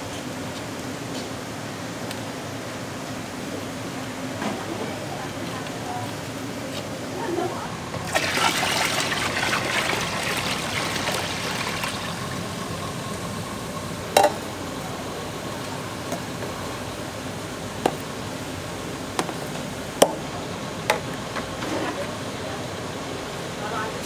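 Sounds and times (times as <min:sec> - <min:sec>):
water running and splashing: 0:07.8 - 0:15.6.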